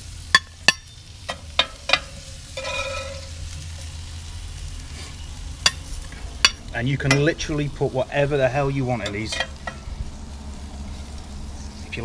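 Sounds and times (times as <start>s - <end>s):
faint sizzle: 0.0s - 12.0s
squeaky scrape: 2.6s - 3.3s.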